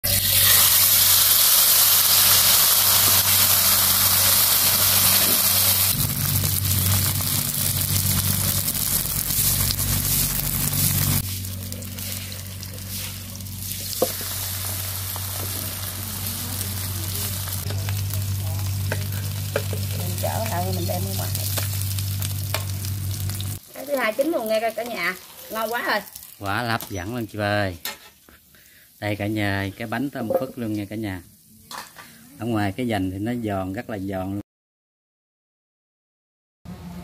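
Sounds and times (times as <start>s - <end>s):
batter sizzling in hot oil: 0.0s - 32.1s
low steady hum: 5.9s - 23.6s.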